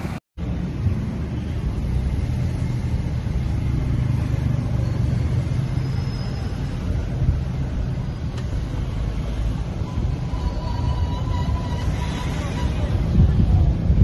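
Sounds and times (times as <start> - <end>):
road and engine rumble: 0.0 - 14.0.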